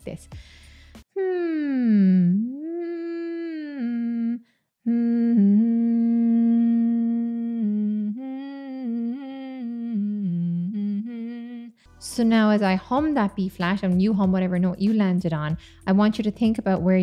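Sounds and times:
woman humming: 1.2s - 11.8s.

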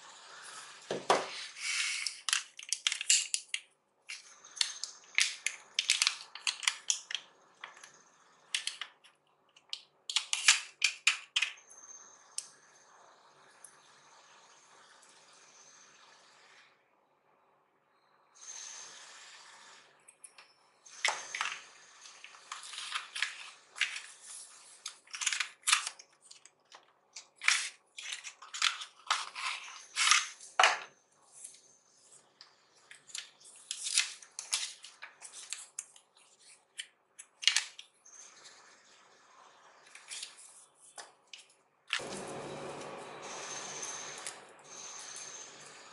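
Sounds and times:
paper rustling and crinkling: 22.4s - 30.4s.

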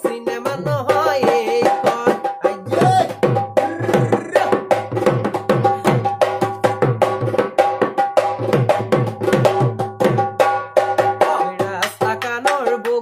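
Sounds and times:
man singing: 0.0s - 6.2s, 11.2s - 13.0s
drum played with stick and hand: 0.0s - 13.0s.

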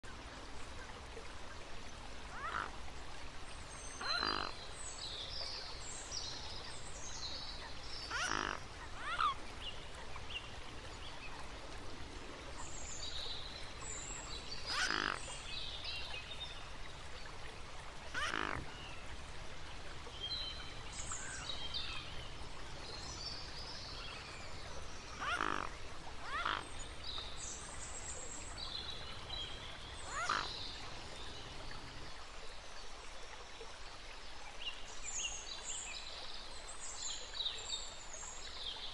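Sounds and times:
small birds chirping: 19.9s - 32.1s.

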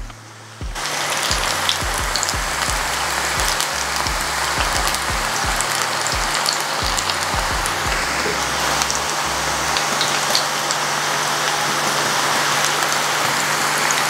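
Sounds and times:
oil sizzling while deep-frying: 0.8s - 8.4s, 9.8s - 14.0s.

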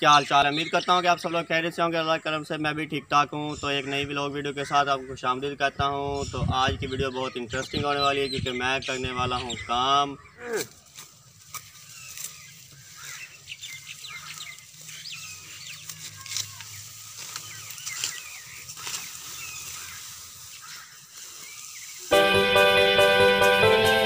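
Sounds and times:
birds chirping: 0.0s - 24.0s
sickle cutting grass: 10.4s - 22.9s.

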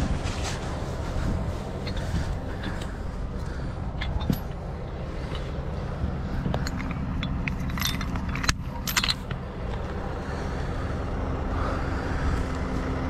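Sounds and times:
heavy diesel engine running: 0.0s - 13.0s
chain links clinking: 3.9s - 10.0s.

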